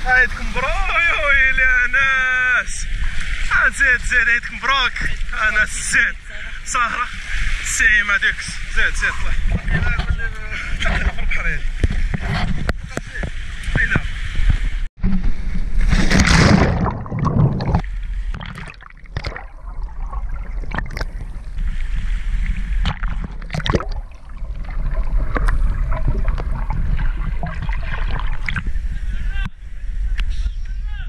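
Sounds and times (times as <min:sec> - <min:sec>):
wind rumbling on microphone: 0:08.4 - 0:18.5, 0:19.1 - 0:31.0
sea water splashing over rocks: 0:13.0 - 0:29.0.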